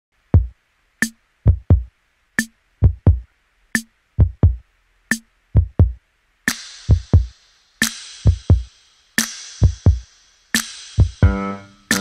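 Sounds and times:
deep kick drums: 1.5s - 1.9s, 2.8s - 3.2s, 4.2s - 4.6s, 5.6s - 6.0s
sharp snare hits: 10.6s - 11.2s.

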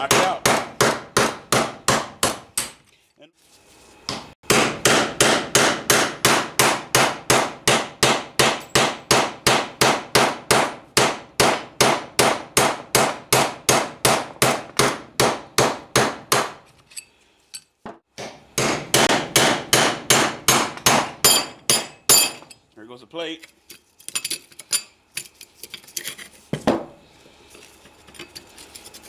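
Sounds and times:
hammer striking steel punch: 0.0s - 2.8s, 4.1s - 16.6s, 18.2s - 22.5s.

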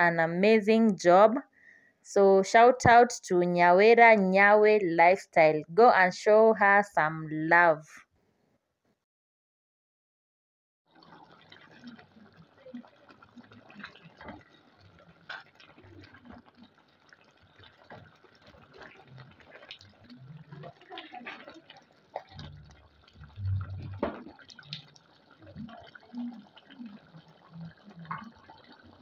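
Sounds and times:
stew sloshing and bubbling: 10.9s - 29.0s.

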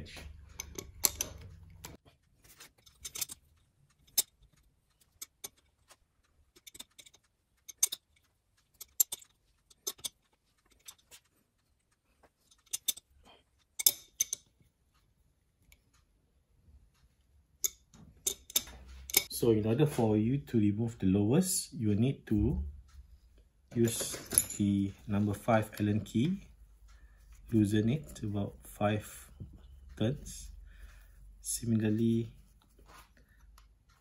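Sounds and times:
wrench clicking on metal: 0.6s - 1.6s, 6.6s - 8.1s, 13.8s - 14.5s, 17.6s - 19.3s.

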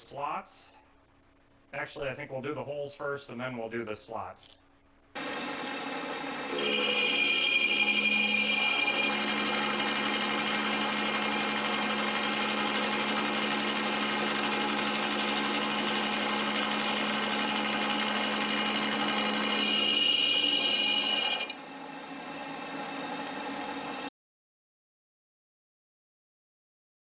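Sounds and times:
milling machine humming: 5.1s - 24.1s
end mill cutting metal: 5.2s - 24.1s.

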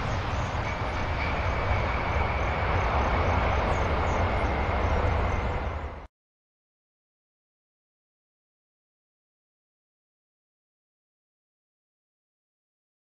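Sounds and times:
faint high whine: 0.0s - 6.1s
jet engines rumbling: 0.0s - 6.1s.

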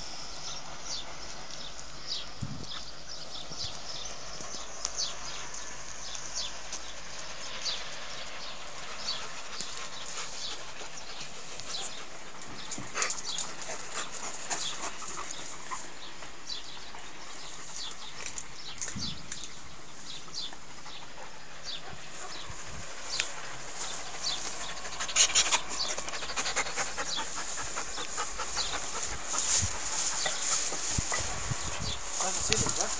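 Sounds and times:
steady hiss: 0.0s - 32.9s
dog panting: 8.7s - 18.1s, 20.4s - 32.9s.

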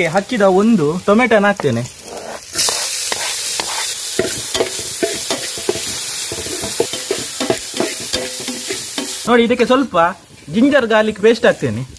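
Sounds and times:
food sizzling in hot oil: 0.0s - 11.9s
metal spoon scraping a pot: 2.0s - 9.2s.

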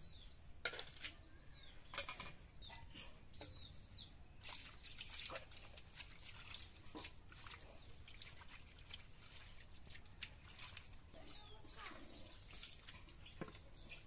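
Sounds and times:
birds chirping: 0.0s - 5.0s, 7.5s - 10.4s, 11.1s - 14.0s
splashes and wet sloshing: 4.4s - 14.0s.

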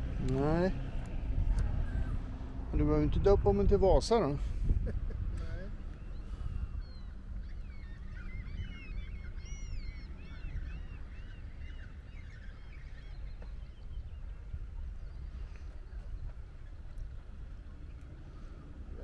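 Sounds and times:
steady low rumble: 0.0s - 19.0s
flock of birds calling: 6.0s - 13.8s.

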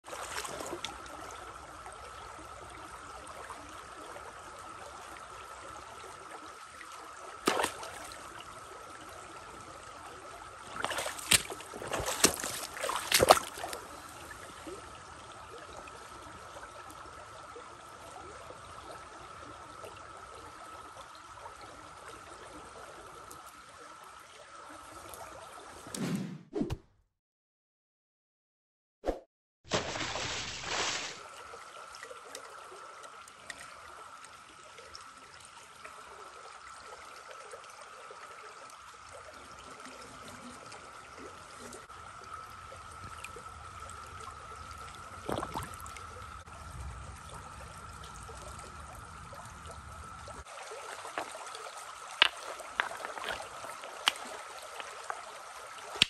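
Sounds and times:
creek trickling over stones: 0.0s - 25.8s, 29.7s - 56.0s
hand splashing in water: 7.5s - 8.1s, 10.8s - 13.8s, 29.7s - 31.2s.

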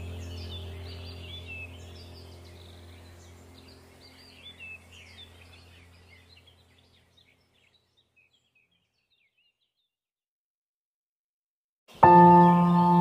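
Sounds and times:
low steady hum: 0.0s - 8.5s
small birds chirping: 0.0s - 10.0s, 11.9s - 13.0s.

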